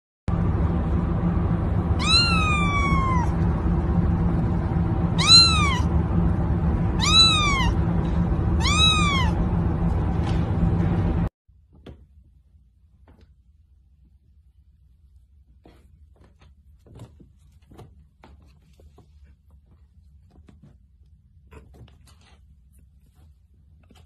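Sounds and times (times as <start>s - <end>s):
steady low hum: 0.3s - 11.3s
kitten meowing: 2.0s - 3.4s, 5.2s - 5.9s, 7.0s - 7.8s, 8.6s - 9.4s.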